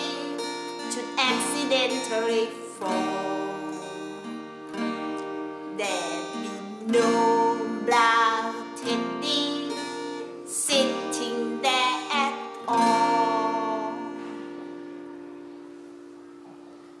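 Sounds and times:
woman singing: 0.0s - 4.4s, 5.4s - 14.8s
strummed acoustic guitar: 0.0s - 17.0s.

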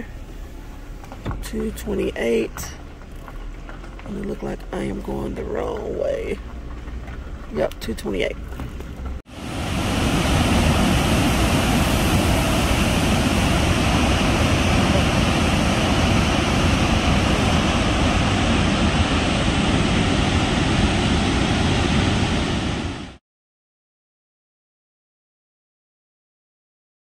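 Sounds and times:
large waterfall rushing: 9.3s - 23.2s.

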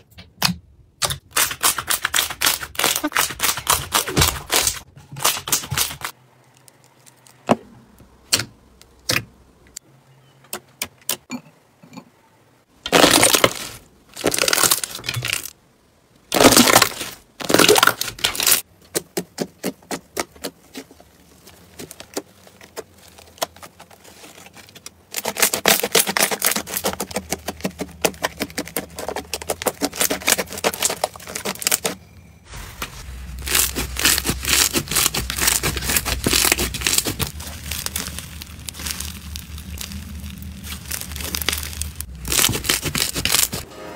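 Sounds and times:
slime crackling: 1.2s - 7.5s, 12.9s - 15.5s, 16.2s - 43.6s
slime clicking and popping: 33.5s - 43.6s.

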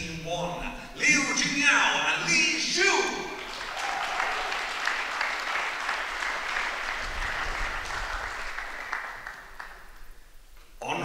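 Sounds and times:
audience applauding: 3.4s - 10.2s.

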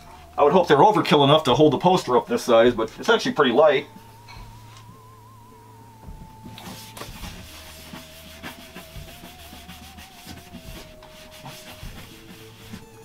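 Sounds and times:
background music note: 0.0s - 13.0s
hands rubbing plate on wall: 6.4s - 13.0s.

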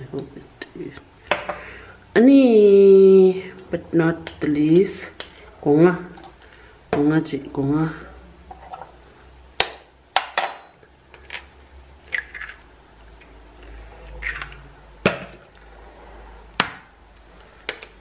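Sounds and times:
eggs cracking against glass bowl: 11.2s - 13.4s, 14.0s - 14.6s
eggshell handling noises: 12.1s - 14.6s.

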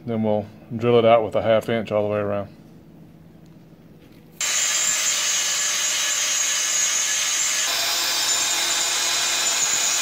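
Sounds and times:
cordless drill boring into metal: 4.4s - 10.0s.

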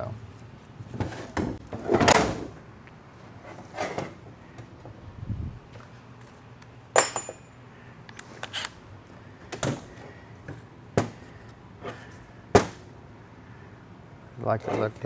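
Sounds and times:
metal parts clinking on workbench: 7.0s - 7.5s.

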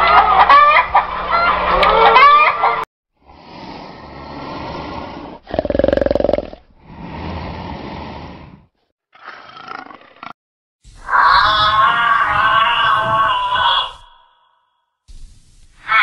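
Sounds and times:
big cat growling: 3.2s - 10.4s.

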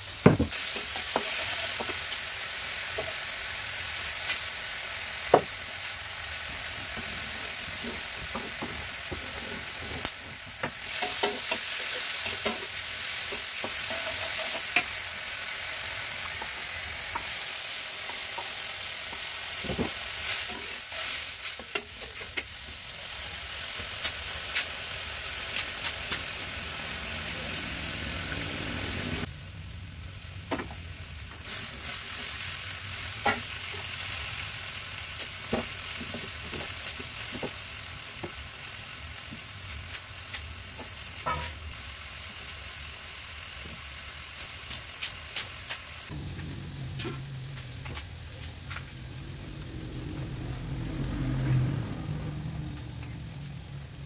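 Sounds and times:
seasoning sizzling in a wok: 0.0s - 54.0s
metal spatula scraping a pan: 13.6s - 15.0s, 41.2s - 41.6s.

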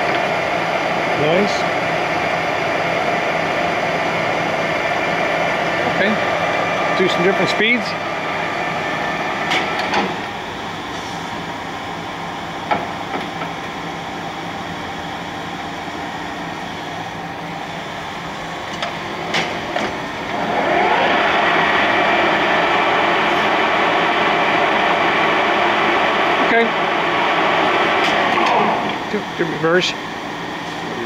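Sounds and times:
lathe gear whine: 0.0s - 31.0s.

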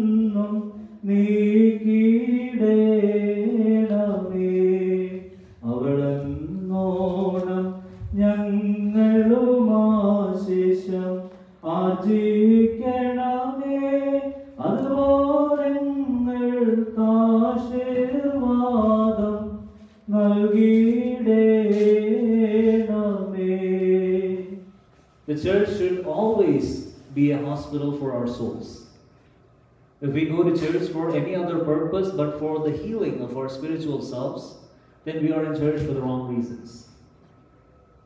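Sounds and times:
man chanting a prayer: 0.0s - 19.5s, 25.3s - 28.9s, 30.0s - 37.0s.

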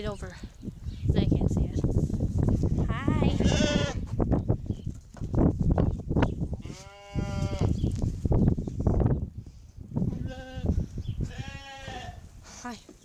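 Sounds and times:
sheep bleating: 2.9s - 4.0s, 11.3s - 12.2s.

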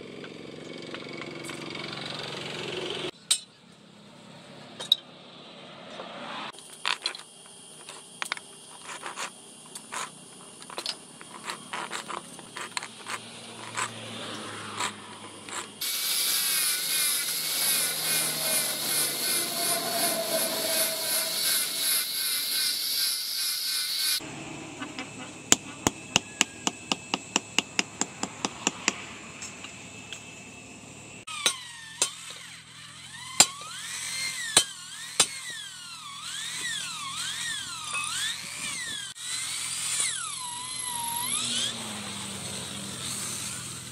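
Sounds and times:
angle grinder sanding: 8.7s - 24.2s, 31.7s - 43.9s
hammer tapping metal: 25.5s - 29.0s.

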